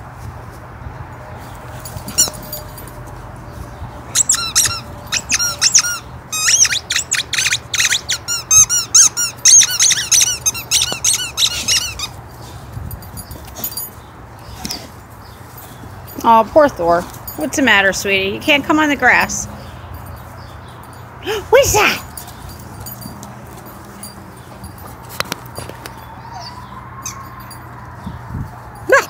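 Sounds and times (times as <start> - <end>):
squeaky toy squeaking: 2.1 - 2.5, 4.1 - 12.2.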